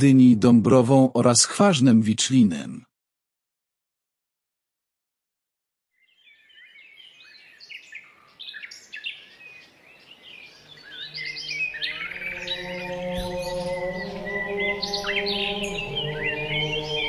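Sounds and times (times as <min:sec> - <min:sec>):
birds chirping and trilling: 0:06.0 - 0:17.0
low held tones: 0:11.0 - 0:17.0.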